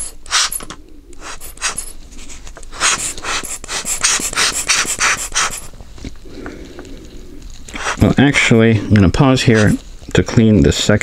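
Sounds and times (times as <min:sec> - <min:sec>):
rubber bulb blower puffing air: 0:00.0 - 0:05.8, 0:07.6 - 0:08.2.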